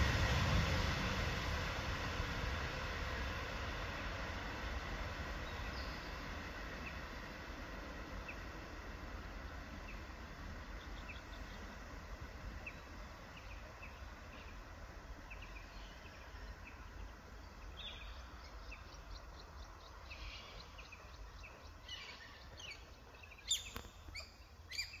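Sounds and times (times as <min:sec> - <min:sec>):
low steady rumble: 0:00.0 - 0:24.9
birds chirping: 0:12.5 - 0:25.0.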